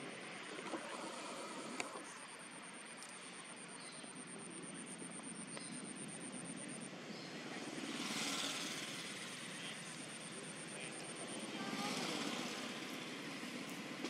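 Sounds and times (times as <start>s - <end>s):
distant engine drone: 0.0s - 14.0s
thin high steady tone: 0.0s - 14.0s.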